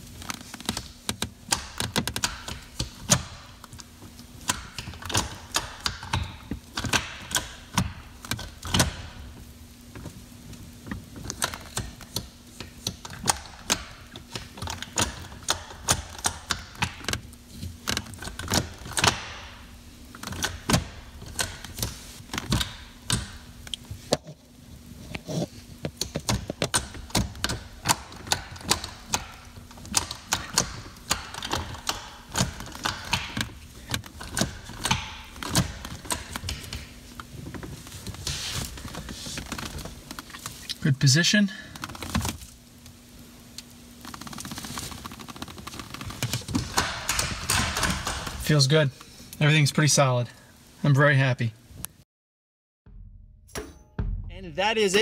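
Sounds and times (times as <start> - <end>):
gear shifter clicking and clunking: 0.6 - 8.9, 25.9 - 38.2.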